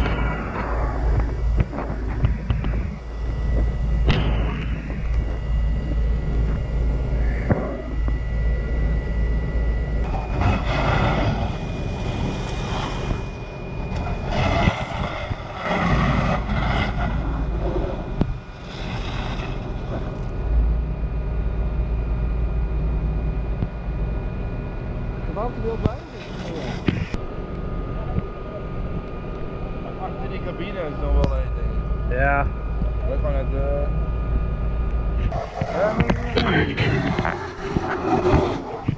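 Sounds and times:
rushing noise: 0:00.0 - 0:20.2
wind rumbling on microphone: 0:00.0 - 0:27.2, 0:30.9 - 0:38.9
fire engine pump running: 0:00.0 - 0:38.8.

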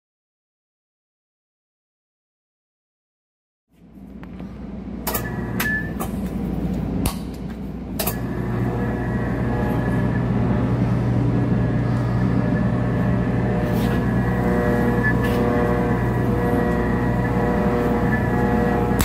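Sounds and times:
electric blender motor humming: 0:08.2 - 0:19.0.

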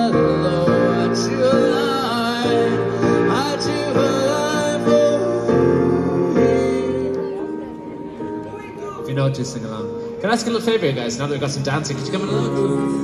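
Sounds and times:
man singing into microphone: 0:00.0 - 0:07.1, 0:11.9 - 0:13.0
piano chords: 0:00.0 - 0:13.0.

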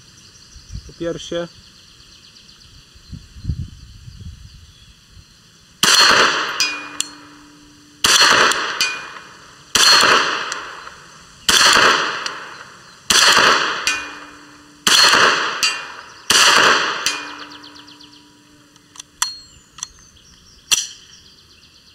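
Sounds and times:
pistol shots with echo: 0:05.8 - 0:18.4
distant metallic ping: 0:05.8 - 0:19.9.

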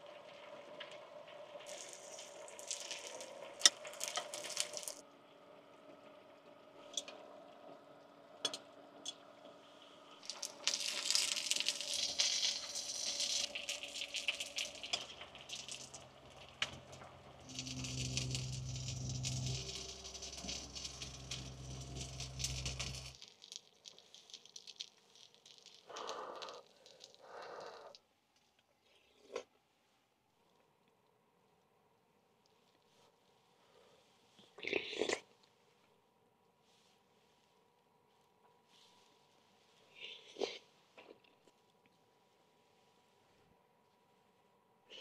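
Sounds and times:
pot boiling: 0:00.0 - 0:05.1, 0:08.4 - 0:28.0
low steady hum: 0:00.8 - 0:23.2.

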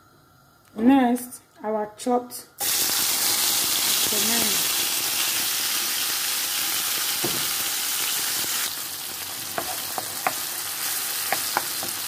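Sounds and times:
tomatoes sizzling in hot oil: 0:02.6 - 0:12.0
wooden spoon knocking on pan: 0:07.2 - 0:07.5, 0:09.5 - 0:10.5, 0:11.2 - 0:12.0.

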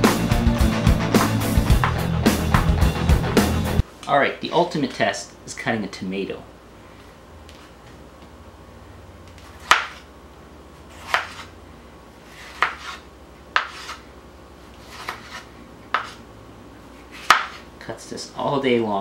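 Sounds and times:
knife slicing a tomato: 0:09.4 - 0:10.1, 0:10.9 - 0:11.6, 0:12.2 - 0:14.0, 0:14.8 - 0:16.2, 0:17.1 - 0:17.7.

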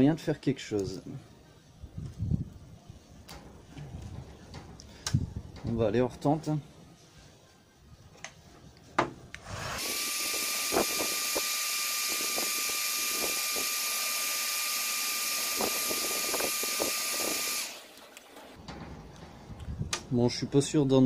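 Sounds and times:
heat gun hissing and whining: 0:09.4 - 0:17.9.

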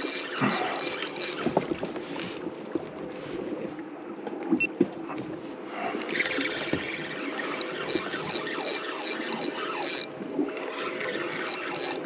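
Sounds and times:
water lapping against kayak hull: 0:00.0 - 0:04.0.

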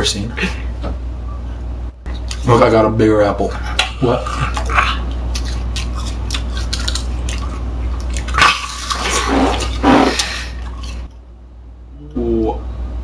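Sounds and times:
apple crunching and chewing: 0:03.5 - 0:11.1.

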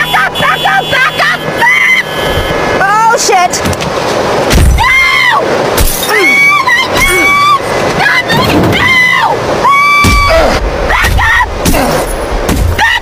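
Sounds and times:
woman screaming: 0:00.0 - 0:02.1, 0:04.8 - 0:05.5, 0:06.1 - 0:11.6, 0:12.8 - 0:13.0.

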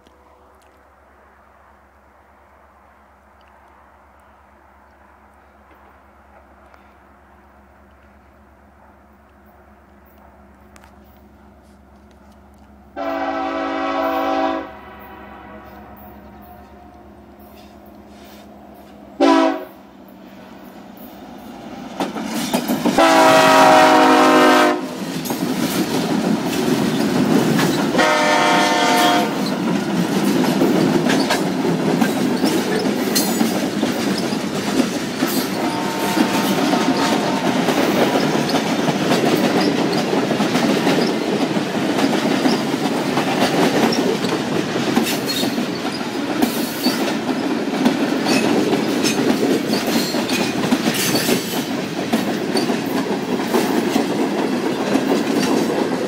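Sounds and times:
boxcars rolling past: 0:05.1 - 0:56.0
locomotive air horn blasts: 0:13.0 - 0:18.5, 0:19.2 - 0:19.9, 0:23.0 - 0:25.0, 0:27.9 - 0:29.5, 0:35.5 - 0:37.8
wheels clicking over rail joints: 0:20.6 - 0:23.9, 0:24.6 - 0:56.0.

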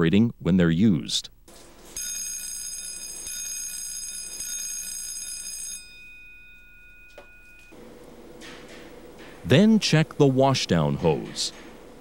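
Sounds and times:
electric alarm bell ringing: 0:02.0 - 0:07.8.

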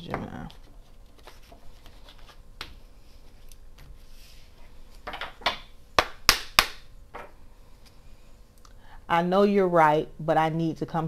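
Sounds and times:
cards shuffling: 0:00.4 - 0:04.0.

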